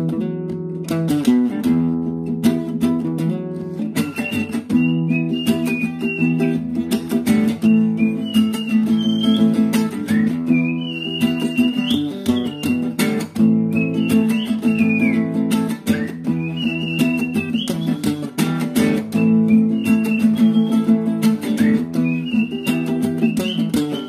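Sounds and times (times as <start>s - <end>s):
strummed acoustic guitar: 0.0s - 24.0s.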